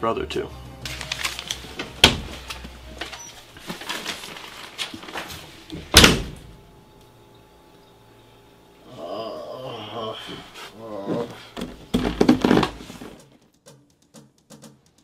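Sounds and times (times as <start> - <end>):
door slamming shut: 2.0 - 2.4, 5.8 - 6.5.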